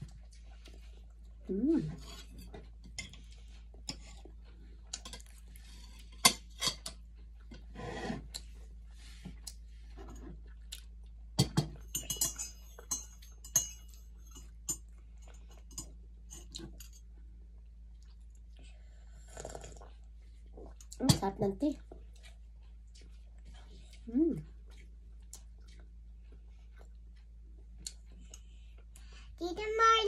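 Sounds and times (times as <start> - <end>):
quiet chewing: 0.0 - 11.9, 12.7 - 29.4
cutlery clinking on a plate: 11.4 - 14.9.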